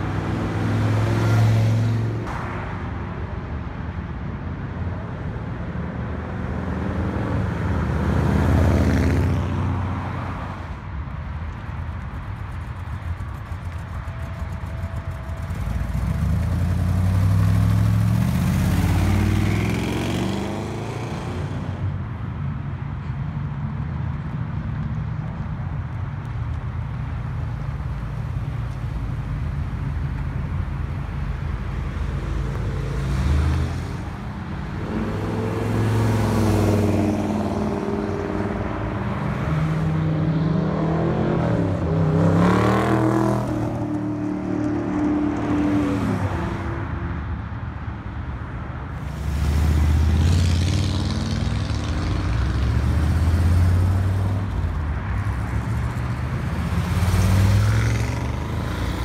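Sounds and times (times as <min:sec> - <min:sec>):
car engines running: 0:00.0 - 0:59.0
car engine revving: 0:14.4 - 0:21.8.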